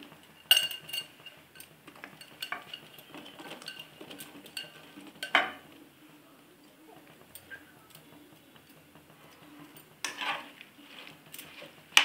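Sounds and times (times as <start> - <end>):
bowl clinking against pan: 0.5 - 5.7.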